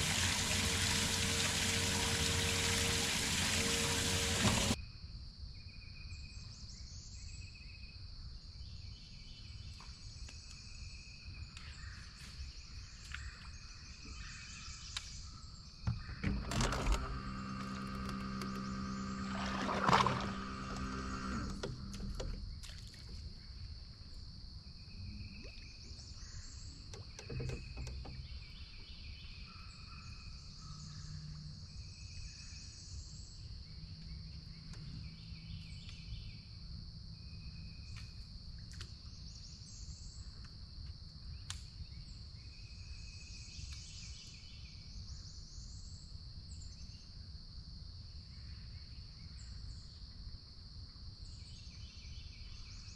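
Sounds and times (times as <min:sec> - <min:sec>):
low motor hum: 0:00.0 - 0:04.8, 0:15.9 - 0:23.2.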